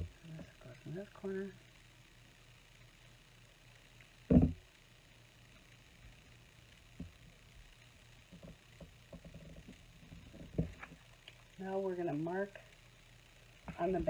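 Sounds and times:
thump on tabletop: 0:04.3 - 0:04.6.

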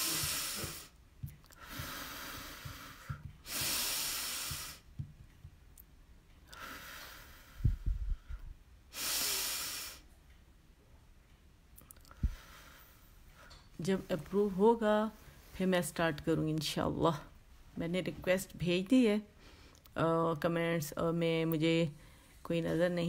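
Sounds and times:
woman breathing slowly: 0:00.0 - 0:05.0, 0:06.4 - 0:10.3, 0:12.0 - 0:15.6, 0:19.3 - 0:19.9, 0:22.0 - 0:22.5
low bumps: 0:07.6 - 0:08.6.

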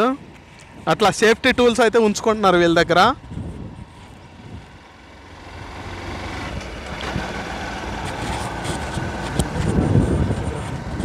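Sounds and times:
wind rushing on microphone: 0:00.0 - 0:04.8, 0:06.4 - 0:11.0
motorcycle engine running: 0:03.2 - 0:11.0.

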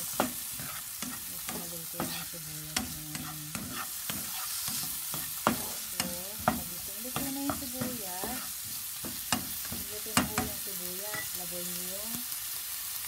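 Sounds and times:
onions sizzling in a frying pan: 0:00.0 - 0:13.0.

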